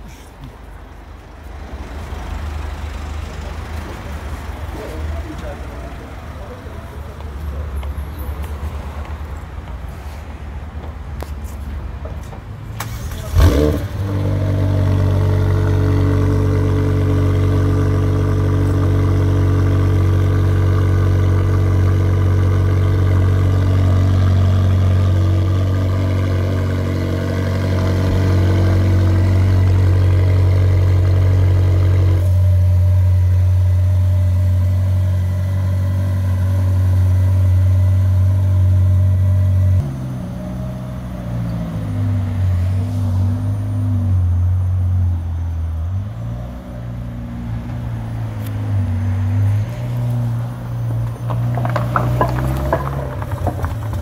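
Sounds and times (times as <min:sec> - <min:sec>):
car engine starting and idling: 0:12.6 - 0:54.0.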